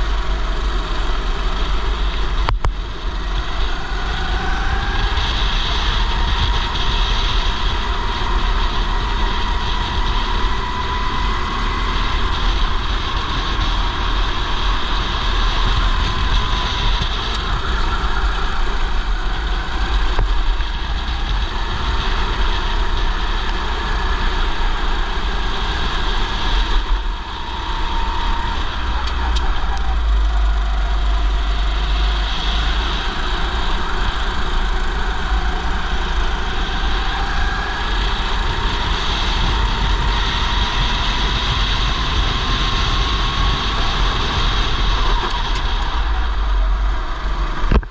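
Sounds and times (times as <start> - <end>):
kart engine running hard: 0.0 - 47.9
wind buffeting on camera: 0.0 - 47.9.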